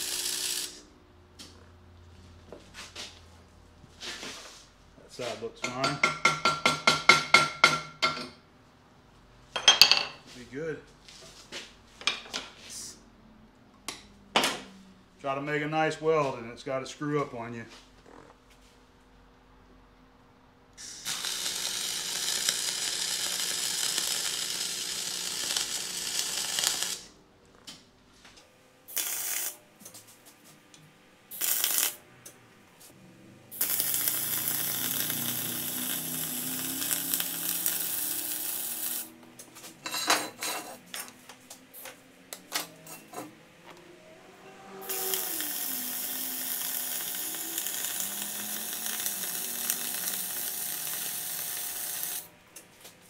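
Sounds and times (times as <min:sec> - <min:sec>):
welder arc crackling and hissing: 0:00.0 - 0:01.7, 0:20.8 - 0:27.2, 0:28.9 - 0:30.2, 0:31.3 - 0:32.0, 0:32.8 - 0:39.5, 0:44.8 - 0:52.3.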